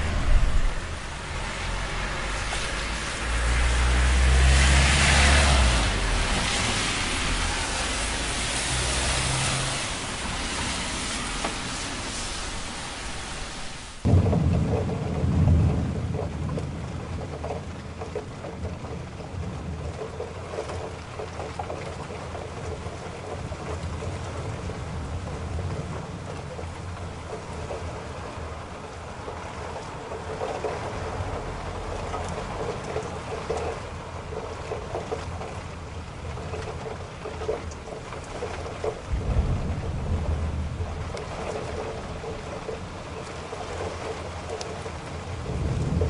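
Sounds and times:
car engine and tyres rumbling: 0:00.0 - 0:13.6, 0:15.8 - 0:46.0
rain and water spray hiss: 0:00.0 - 0:46.0.

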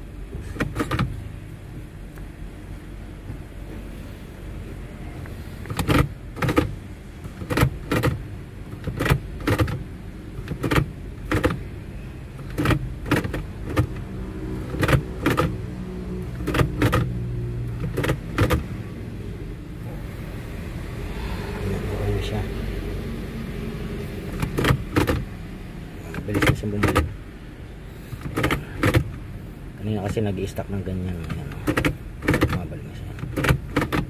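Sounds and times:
gear shifter clicking: 0:00.3 - 0:02.3, 0:05.6 - 0:11.7, 0:12.4 - 0:15.6, 0:16.2 - 0:18.7, 0:24.3 - 0:25.3, 0:26.1 - 0:27.2, 0:28.1 - 0:29.2, 0:29.8 - 0:34.0.

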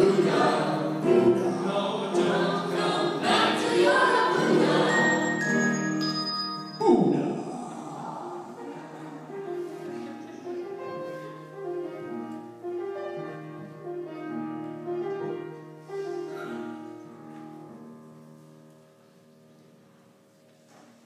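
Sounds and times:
keyboard melody: 0:00.0 - 0:07.5.

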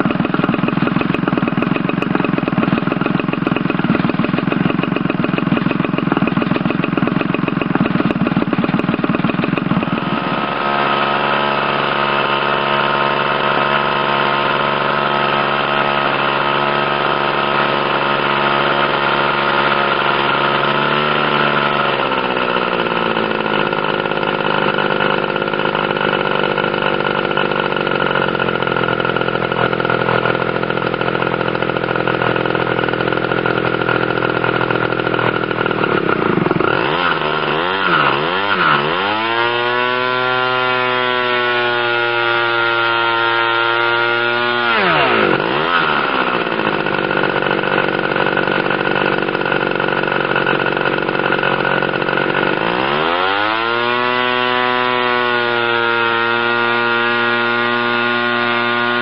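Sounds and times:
model aircraft engine running: 0:00.0 - 0:59.0.

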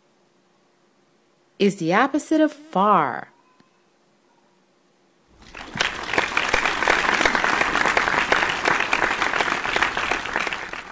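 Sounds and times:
crowd applauding: 0:05.4 - 0:10.9.

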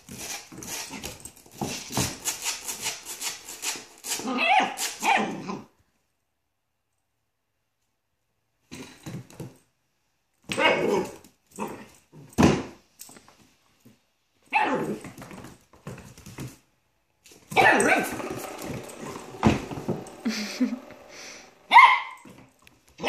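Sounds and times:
dog barking and yipping: 0:04.2 - 0:05.7, 0:17.5 - 0:20.6, 0:21.5 - 0:22.4.

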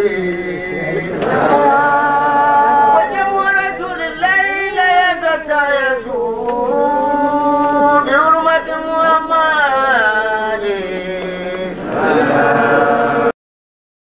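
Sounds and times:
man chanting: 0:00.0 - 0:13.3.

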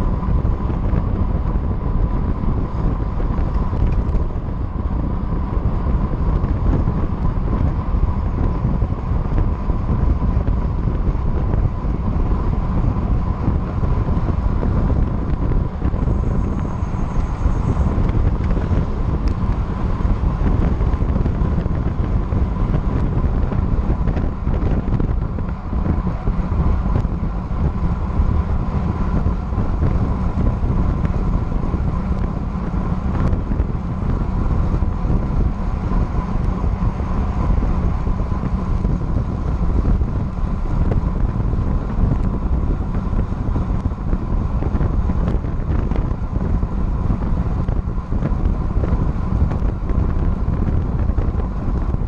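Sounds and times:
faint steady whine: 0:00.0 - 0:52.0
tyre and road noise: 0:00.0 - 0:52.0
wind buffeting microphone: 0:00.0 - 0:52.0.

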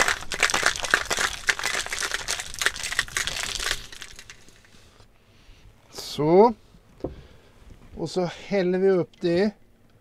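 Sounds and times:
ice cubes rattling in cocktail shaker: 0:00.0 - 0:04.7.

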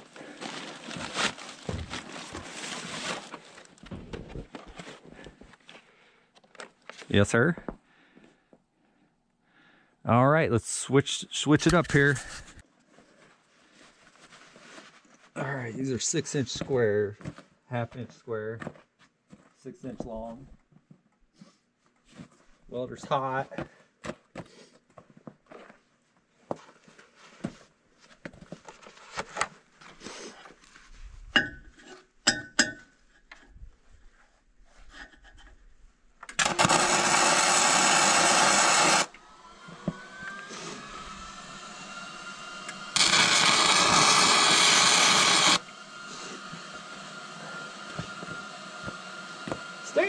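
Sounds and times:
welding arc crackling: 0:36.4 - 0:39.1, 0:42.9 - 0:45.6.

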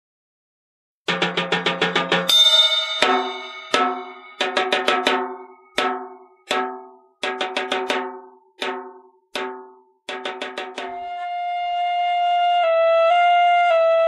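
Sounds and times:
ringing percussion music: 0:01.2 - 0:11.0.

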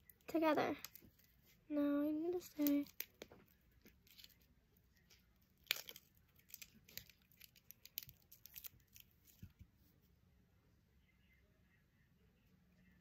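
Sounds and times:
plastic sheet crinkling and clicking: 0:00.0 - 0:01.5, 0:02.3 - 0:09.6.

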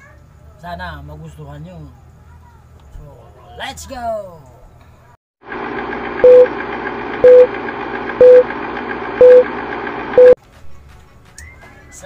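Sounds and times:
film projector running: 0:05.4 - 0:10.2
short loud beeps: 0:06.2 - 0:06.5, 0:07.2 - 0:07.5, 0:08.2 - 0:08.5, 0:09.2 - 0:09.5, 0:10.2 - 0:10.4.

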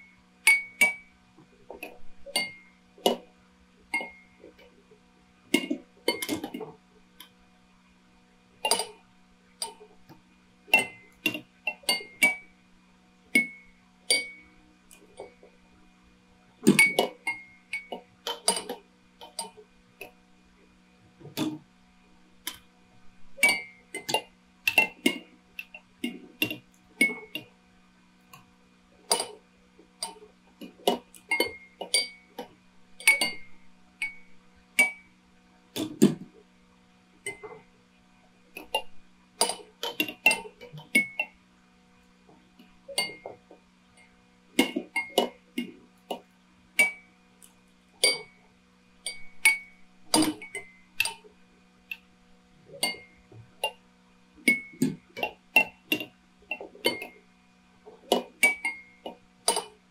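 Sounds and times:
steady low hum: 0:00.0 - 0:59.9
glass toys clinking and tapping: 0:02.3 - 0:02.6, 0:13.4 - 0:14.4, 0:23.4 - 0:25.8, 0:30.0 - 0:32.2, 0:33.0 - 0:34.2, 0:38.6 - 0:41.3, 0:43.0 - 0:43.3, 0:44.6 - 0:45.4, 0:46.8 - 0:47.0, 0:48.0 - 0:48.4, 0:49.1 - 0:51.2, 0:52.8 - 0:53.8, 0:54.5 - 0:57.2, 0:58.1 - 0:58.9, 0:59.5 - 0:59.8.

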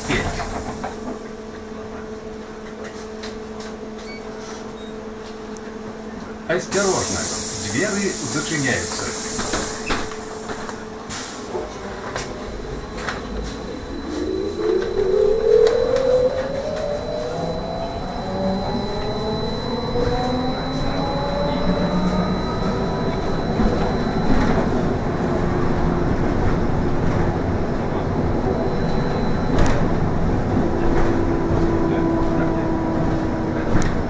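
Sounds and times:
road and cabin noise: 0:00.0 - 0:34.0
steady hum: 0:12.1 - 0:30.8
electric motor whining: 0:13.0 - 0:25.2.

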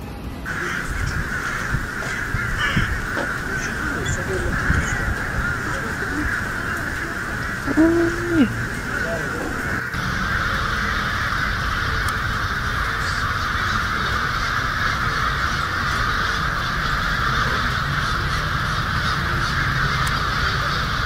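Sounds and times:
flock of blackbirds calling: 0:00.5 - 0:21.0.

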